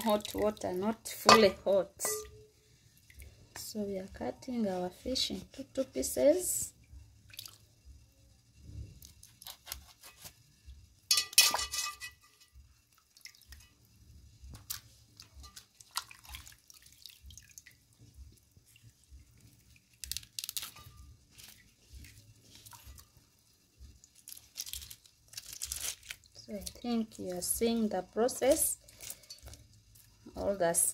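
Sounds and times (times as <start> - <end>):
water splashing in a steel bowl: 0.0 - 8.0, 11.0 - 30.9
metal clatter with a ring: 11.1 - 12.6.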